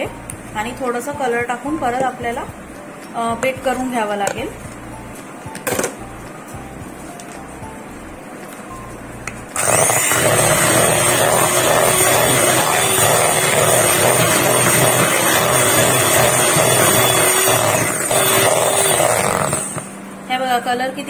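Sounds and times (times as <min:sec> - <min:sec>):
beaters whipping cream in bowl: 0:09.6 - 0:19.9
electric hand mixer whining: 0:09.6 - 0:20.0.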